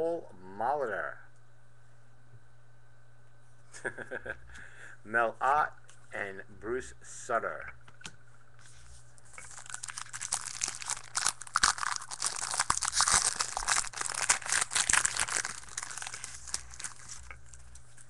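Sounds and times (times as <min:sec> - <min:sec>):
card pack wrapper crinkling: 0:09.3 - 0:18.0.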